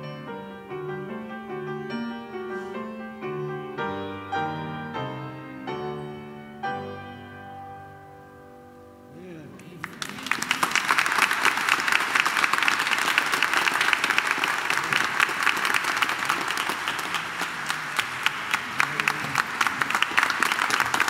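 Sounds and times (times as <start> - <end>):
piano chord: 0.0 - 9.8
audience applauding: 9.6 - 21.0.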